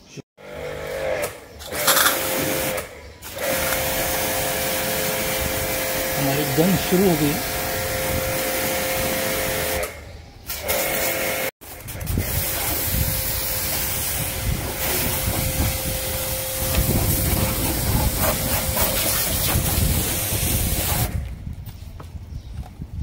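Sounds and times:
pressure washer spray hiss: 0:12.3 - 0:21.2.

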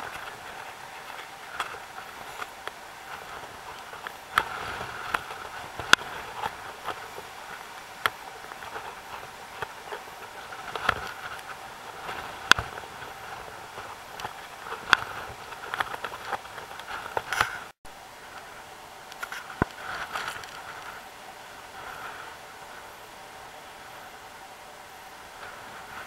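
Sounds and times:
sea surf washing over rocks: 0:00.0 - 0:18.6.

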